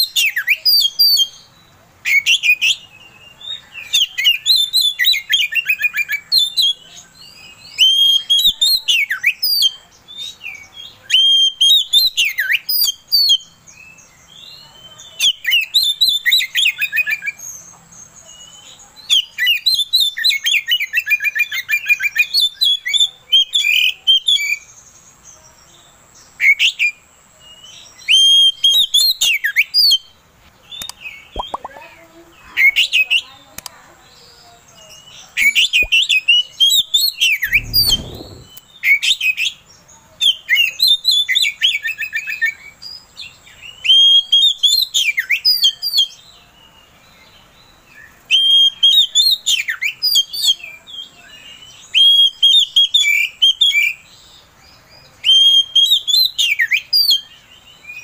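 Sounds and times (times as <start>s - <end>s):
bird singing whistles and trills: 0.0s - 24.7s, 26.4s - 30.2s, 30.8s - 31.8s, 34.9s - 39.6s, 40.2s - 46.3s, 47.6s - 54.3s, 55.2s - 58.0s.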